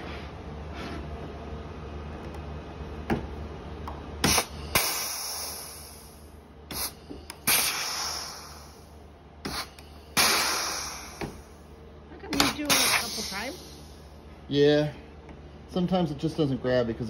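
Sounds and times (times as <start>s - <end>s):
air exhaust hiss: 4.2s - 15.2s.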